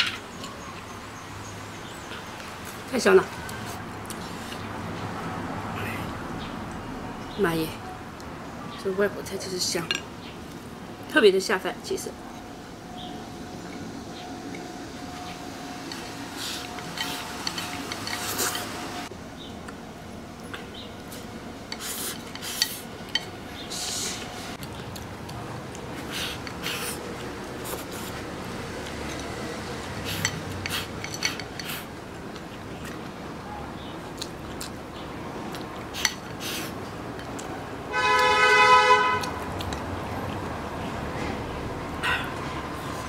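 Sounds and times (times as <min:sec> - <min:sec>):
eating noises: 0:15.9 - 0:18.8, 0:20.4 - 0:38.4, 0:39.1 - 0:43.0
two-tone horn blast: 0:37.9 - 0:39.4.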